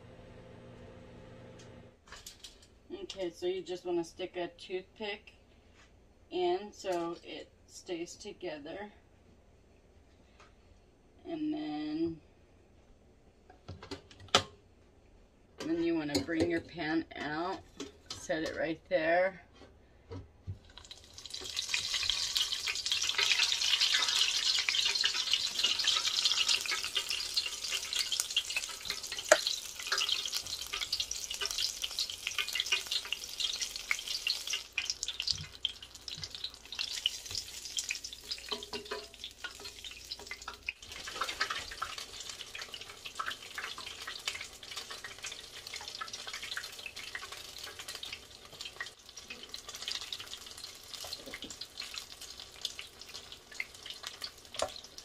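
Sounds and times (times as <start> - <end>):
food sizzling in deep fryer: 20.6 - 55.0.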